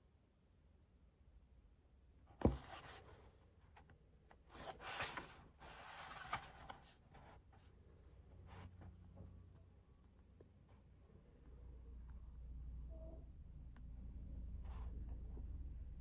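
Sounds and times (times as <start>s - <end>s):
book pages rustling: 2.4s - 3.2s, 3.8s - 7.7s.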